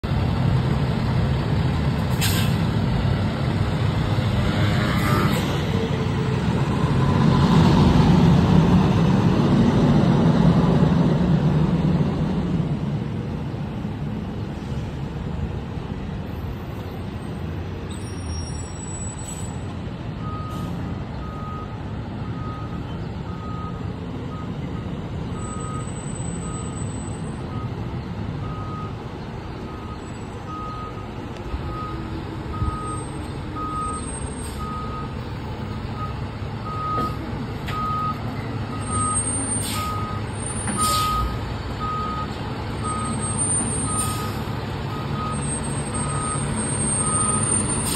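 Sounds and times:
reversing alarm beeping: 0:20.2 - 0:27.8, 0:29.7 - 0:31.1, 0:31.7 - 0:35.2, 0:36.0 - 0:47.9.

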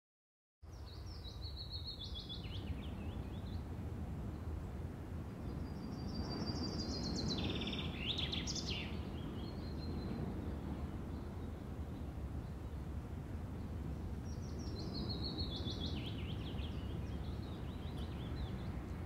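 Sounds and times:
songbird chirping and trilling: 0:00.7 - 0:03.7, 0:05.4 - 0:12.9, 0:13.6 - 0:19.0.

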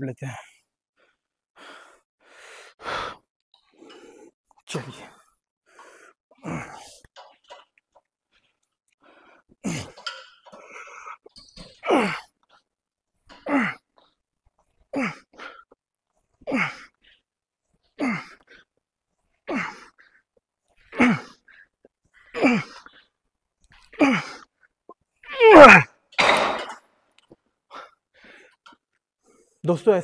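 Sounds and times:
man grunting with effort: 0:04.7 - 0:05.2, 0:11.8 - 0:12.2, 0:13.4 - 0:13.8, 0:18.0 - 0:18.4, 0:21.0 - 0:21.4, 0:22.4 - 0:22.8, 0:25.4 - 0:25.9.

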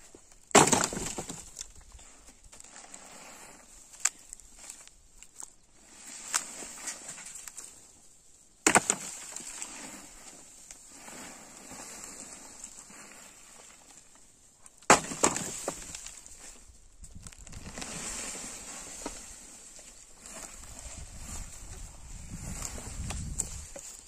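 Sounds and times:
wooden timbers cracking: 0:00.3 - 0:01.8, 0:08.6 - 0:09.7, 0:14.7 - 0:17.9.

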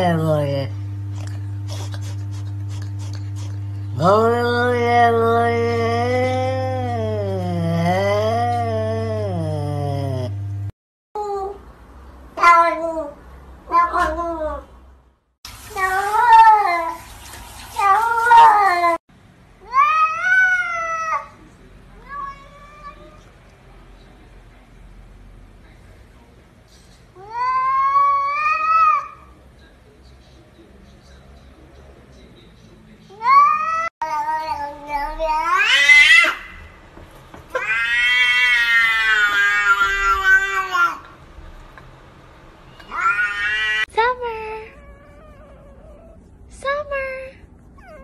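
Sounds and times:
cats meowing: 0:22.0 - 0:23.3, 0:33.2 - 0:36.7, 0:37.5 - 0:41.1, 0:42.8 - 0:43.9.

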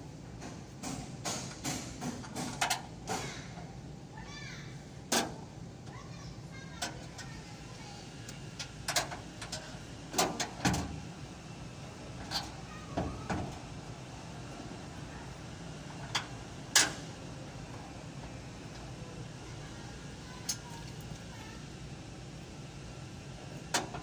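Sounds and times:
steady low hum: 0:00.0 - 0:24.0
tools knocking and clicking: 0:00.4 - 0:03.3.

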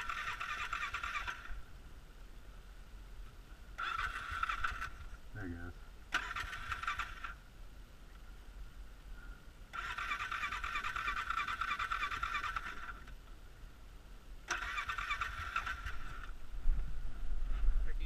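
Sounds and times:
electric starter cranking engine: 0:00.0 - 0:01.6, 0:03.8 - 0:05.1, 0:06.1 - 0:07.4, 0:09.7 - 0:13.2, 0:14.5 - 0:16.3.

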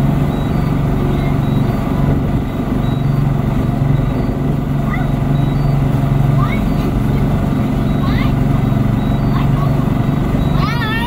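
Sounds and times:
outboard motor droning: 0:00.0 - 0:11.0
wind and water rushing: 0:00.0 - 0:11.0.

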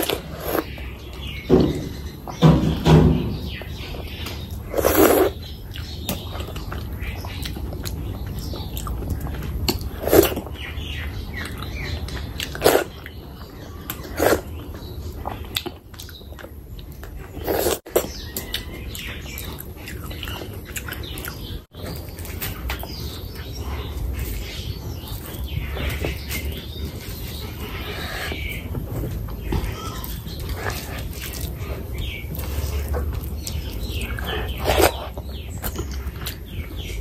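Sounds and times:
close chewing and wet mouth sounds: 0:03.8 - 0:37.0.

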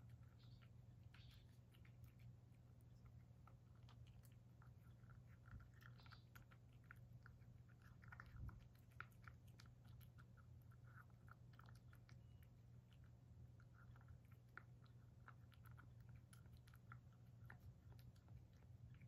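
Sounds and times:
cat chewing food: 0:00.0 - 0:19.0
steady low hum: 0:00.0 - 0:19.0.

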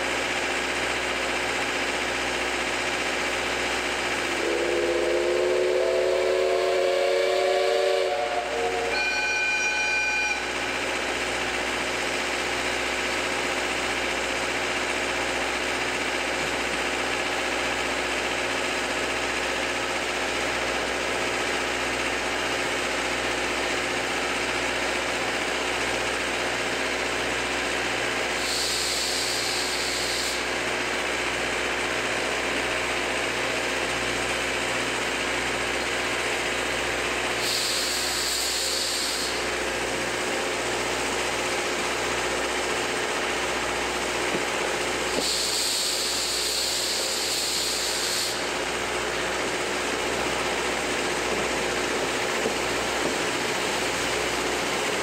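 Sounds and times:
train engine hum: 0:00.0 - 0:55.0
short hisses: 0:37.4 - 0:39.5.

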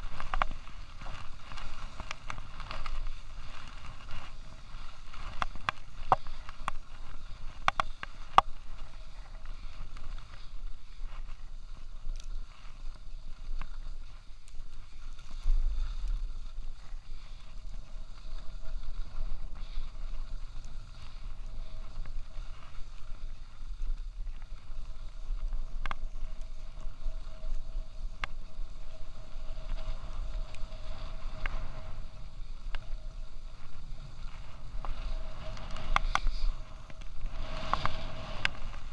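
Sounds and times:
skis scraping over snow: 0:00.0 - 0:38.9
wind rumbling on microphone: 0:00.0 - 0:38.9.

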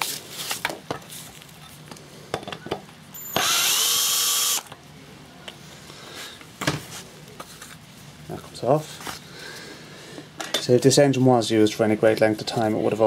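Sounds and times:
power drill whine: 0:03.2 - 0:04.7.

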